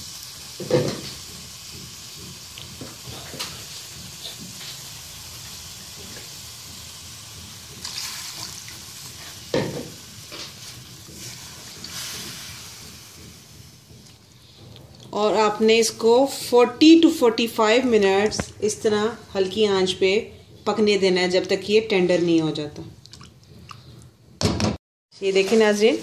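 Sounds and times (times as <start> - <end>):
meat sizzling in a frying pan: 0.0 - 14.6.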